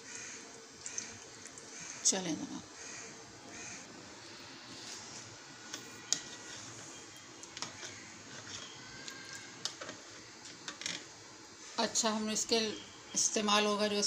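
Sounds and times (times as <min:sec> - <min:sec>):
spoon stirring water: 0:04.8 - 0:10.9.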